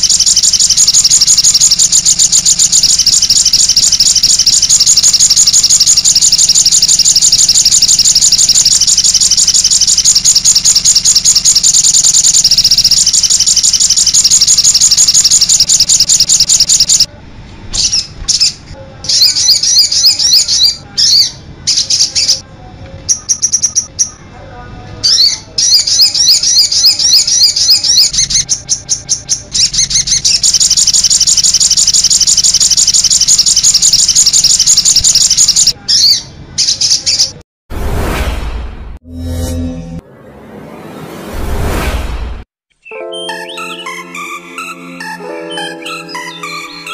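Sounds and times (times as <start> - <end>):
sunbird twittering song: 0.0 - 17.1, 25.1 - 37.3.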